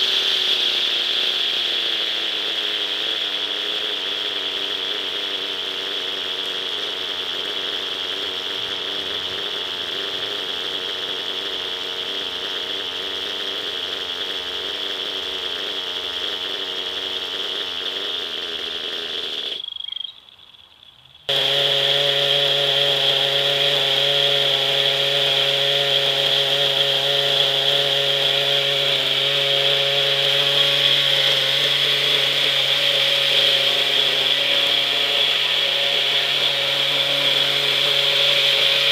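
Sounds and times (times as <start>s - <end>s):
small model engine buzzing: 0.0s - 20.1s, 21.2s - 38.9s.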